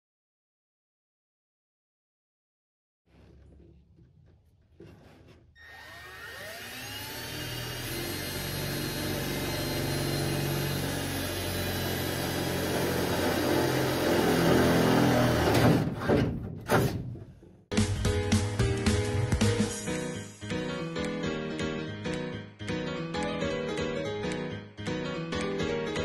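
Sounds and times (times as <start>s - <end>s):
cordless drill boring sheet metal: 5.6s - 15.7s.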